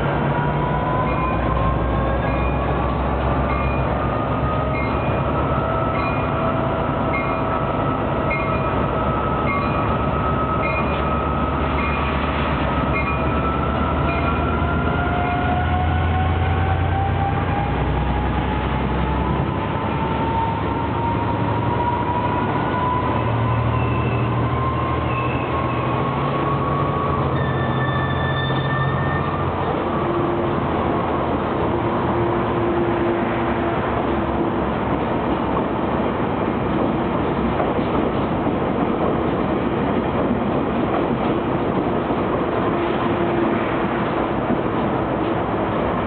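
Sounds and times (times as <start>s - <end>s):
diesel locomotive engine revving: 0.0s - 46.0s
train coaches rolling past: 0.0s - 46.0s
locomotive bell ringing: 1.0s - 2.8s, 3.4s - 4.0s, 4.6s - 6.4s, 7.0s - 12.2s, 12.8s - 15.4s, 27.1s - 30.3s.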